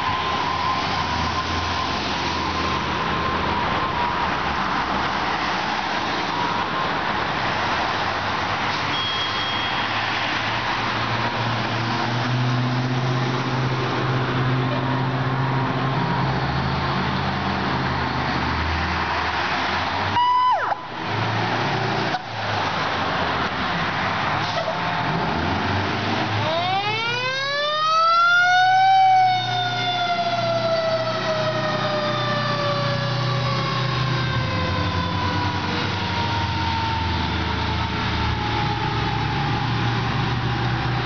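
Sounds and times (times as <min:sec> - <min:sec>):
diesel engine revving: 0:21.0 - 0:41.0.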